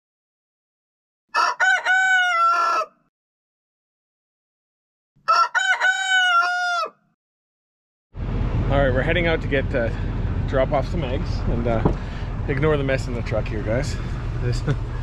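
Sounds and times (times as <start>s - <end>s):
rooster crowing: 1.3s - 3.1s, 5.2s - 7.0s.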